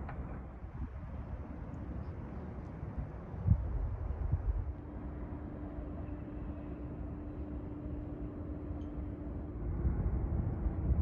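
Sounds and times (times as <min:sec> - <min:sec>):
wind buffeting microphone: 0:03.0 - 0:05.4, 0:09.0 - 0:11.0.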